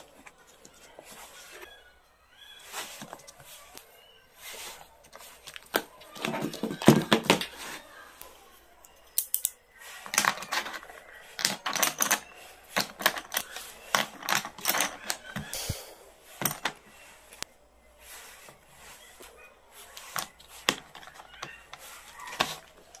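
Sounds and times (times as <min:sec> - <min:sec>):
pens clattering in plastic case: 0:04.4 - 0:07.8, 0:09.2 - 0:15.5, 0:16.3 - 0:17.0, 0:20.0 - 0:23.0.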